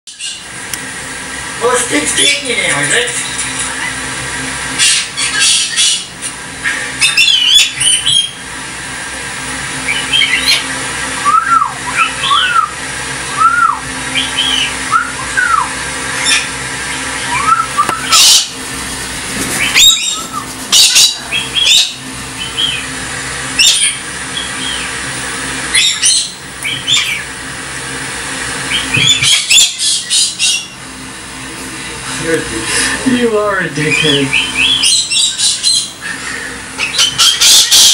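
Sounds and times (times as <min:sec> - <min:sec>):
cockatoos screeching: 0:04.8 - 0:06.2, 0:13.4 - 0:18.6, 0:19.4 - 0:22.9, 0:23.6 - 0:24.9, 0:25.7 - 0:27.3, 0:28.7 - 0:30.8, 0:33.8 - 0:37.9.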